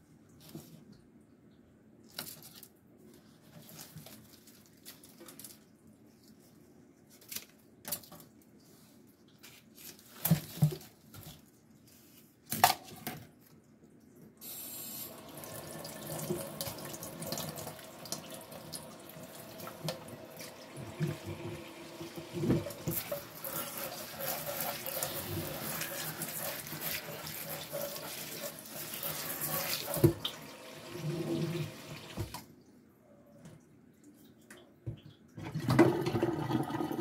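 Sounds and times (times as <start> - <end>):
faucet running into metal sink: 14.4 - 32.4.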